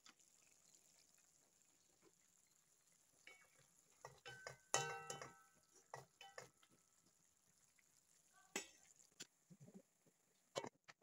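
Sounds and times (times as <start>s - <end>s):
wooden spatula stirring in pan: 0.0s - 10.2s
spatula knocking against pan: 4.0s - 6.6s.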